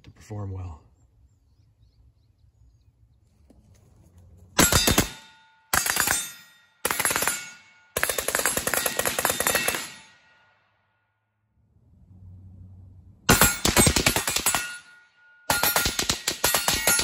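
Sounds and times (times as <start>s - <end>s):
steel targets ringing: 4.6s - 10.6s, 13.3s - 17.0s.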